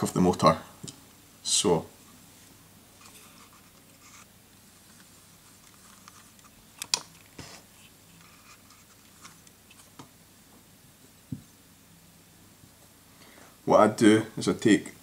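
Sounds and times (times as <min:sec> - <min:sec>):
light clicks and handling noises: 0:03.0 - 0:10.1.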